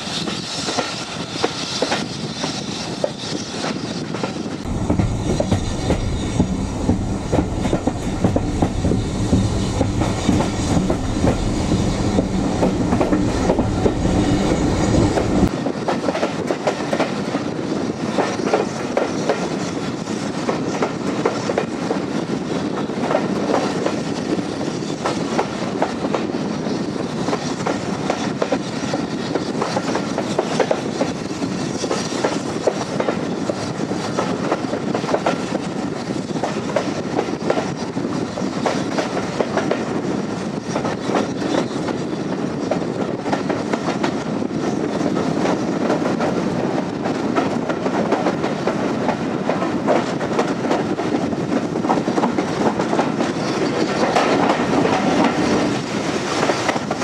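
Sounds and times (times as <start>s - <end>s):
train wheels clicking over rail joints: 0.0s - 57.0s
heavy low rumble: 4.7s - 15.5s.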